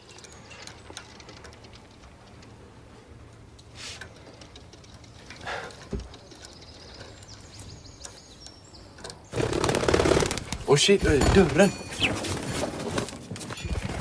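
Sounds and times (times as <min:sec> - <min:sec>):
bird wings fluttering: 0:09.3 - 0:10.8, 0:11.6 - 0:14.0.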